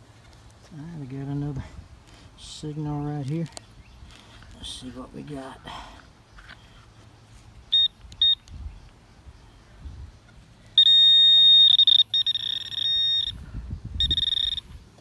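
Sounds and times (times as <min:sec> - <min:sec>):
pinpointer electronic beeping: 0:07.7 - 0:08.5, 0:10.8 - 0:13.4, 0:14.0 - 0:14.7.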